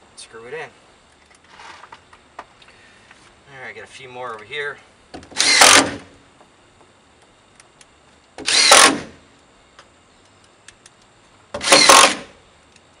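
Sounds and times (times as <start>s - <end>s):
impact driver driving screws: 5.3s - 6.1s, 8.4s - 9.2s, 11.6s - 12.3s.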